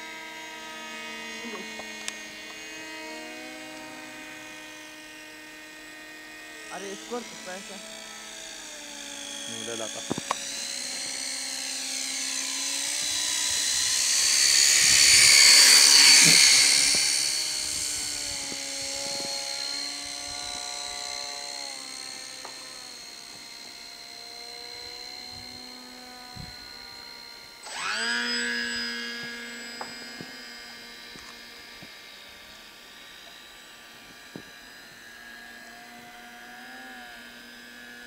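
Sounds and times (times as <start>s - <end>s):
model plane motors whining: 0.0s - 38.0s.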